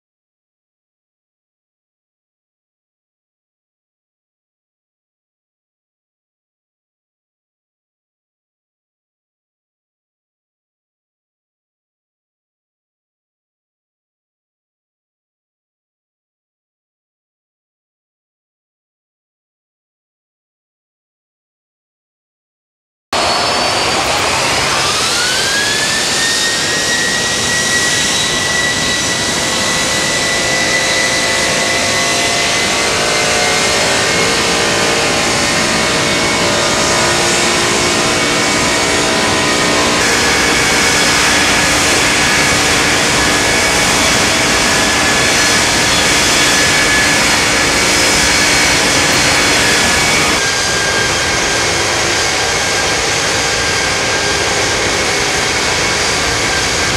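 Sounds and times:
jet engine rushing noise: 23.2 - 56.9
jet engine whine: 23.2 - 56.9.

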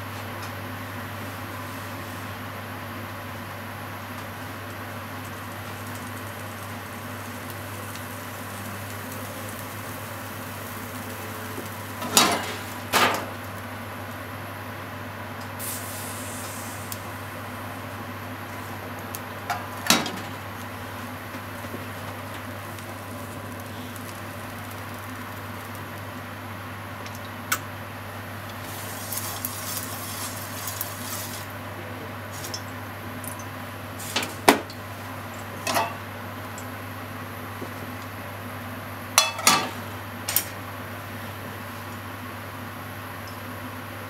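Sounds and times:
steady hum: 0.0 - 44.0.

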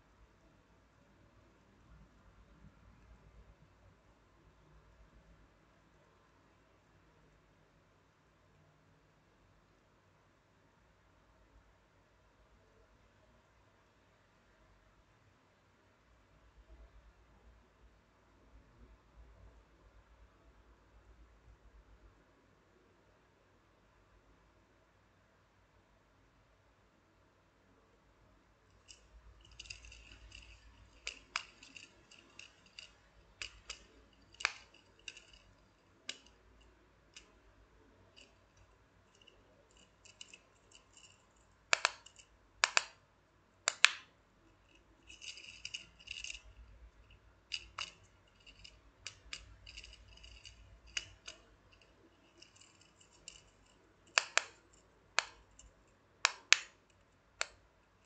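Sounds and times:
fidget toy clicking and popping: 28.8 - 37.4, 38.2 - 44.1, 47.5 - 57.7.

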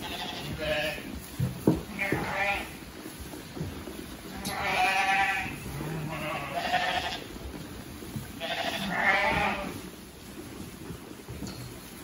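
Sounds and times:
sheep bleating: 0.0 - 1.1, 1.9 - 2.8, 4.3 - 7.3, 8.4 - 9.8.

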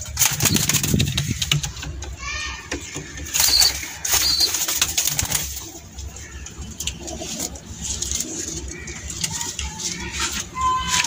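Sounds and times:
sharp clicks and knocks: 0.0 - 3.8
pigeons cooing: 2.8 - 11.0.

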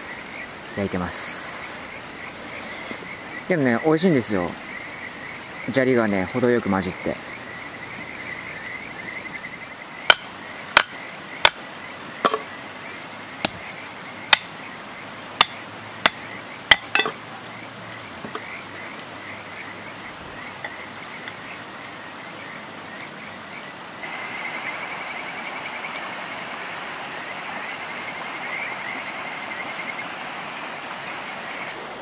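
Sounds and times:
frogs chirping: 0.0 - 32.0
blade chopping firewood: 10.1 - 11.6, 15.4 - 17.2.

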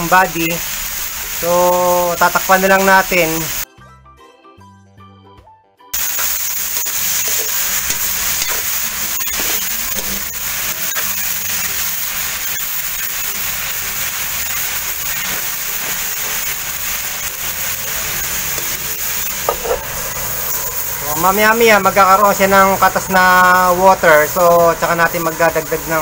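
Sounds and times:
food sizzling in a wok: 0.0 - 3.7, 6.0 - 26.0
metal spatula scraping wok: 6.8 - 13.5, 14.4 - 21.2.

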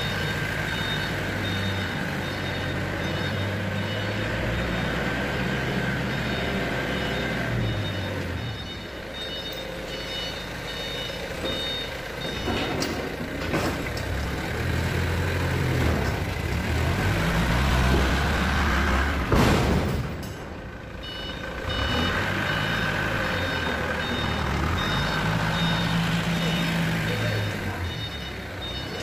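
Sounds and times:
reversing alarm beeping: 0.0 - 13.2, 21.0 - 29.0
forklift engine revving: 0.0 - 29.0.

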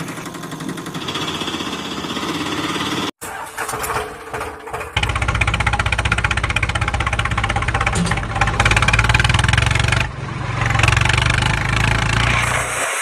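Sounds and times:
tractor engine chugging: 0.0 - 10.1.

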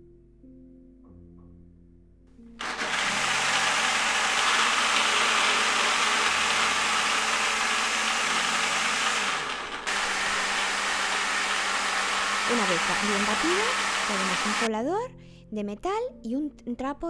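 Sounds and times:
blender running: 2.6 - 14.7.

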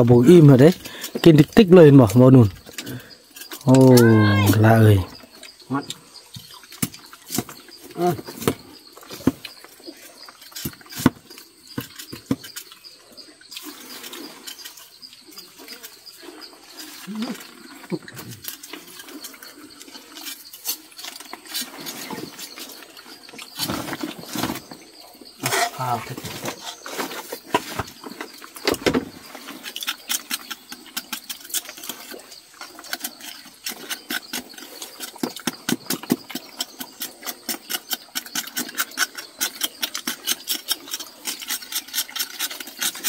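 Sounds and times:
knife scraping wood: 25.4 - 43.0.

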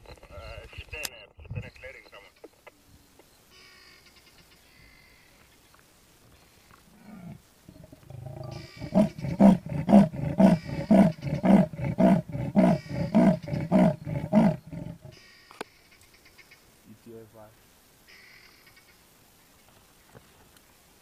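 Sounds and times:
leopard rasping sawing call: 7.0 - 15.2.

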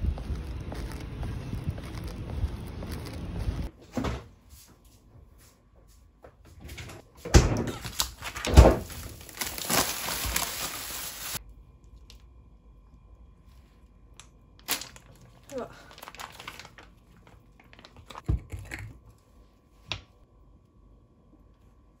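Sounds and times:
plastic packaging rustling: 7.8 - 11.4, 14.6 - 18.2.

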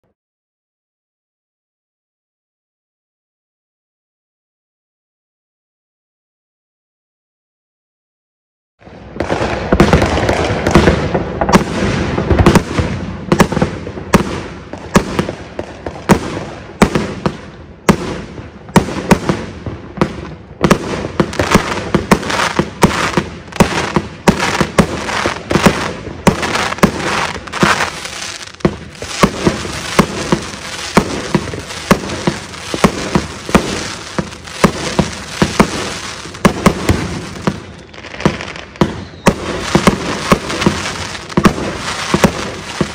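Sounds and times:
firework crackle: 20.2 - 42.9
firework reports: 20.2 - 42.9.

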